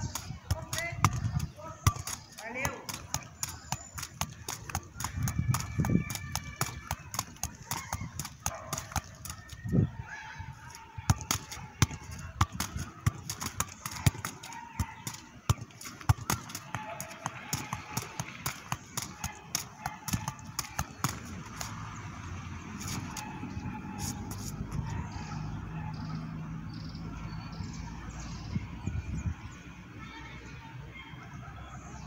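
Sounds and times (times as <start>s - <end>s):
football thuds: 0.0s - 9.8s, 11.0s - 22.0s.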